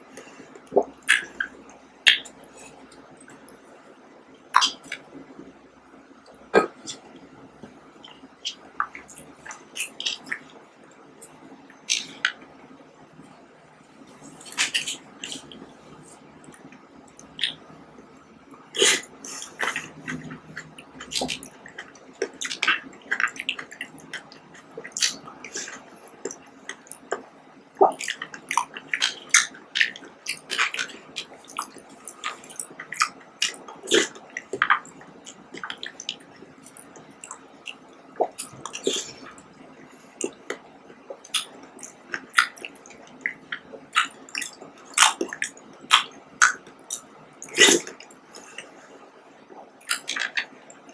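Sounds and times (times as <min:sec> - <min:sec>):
wet chewing and squelching: 0:14.2 - 0:15.7, 0:16.4 - 0:17.6, 0:18.8 - 0:48.8, 0:49.8 - 0:50.9.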